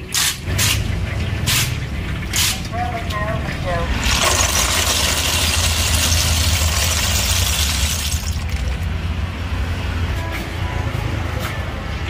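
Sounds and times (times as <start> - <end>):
low rumble of street traffic: 0.0 - 12.0
snail shells clattering: 4.0 - 8.9.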